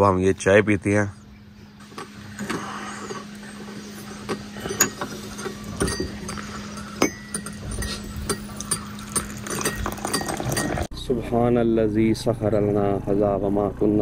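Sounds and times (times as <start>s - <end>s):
cups plates and cutlery clinking: 2.0s - 10.9s.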